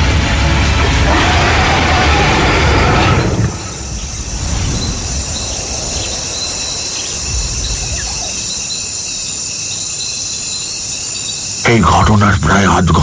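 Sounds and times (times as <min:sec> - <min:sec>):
low rumble: 0:00.0 - 0:08.5
insects chirring in trills: 0:00.9 - 0:13.0.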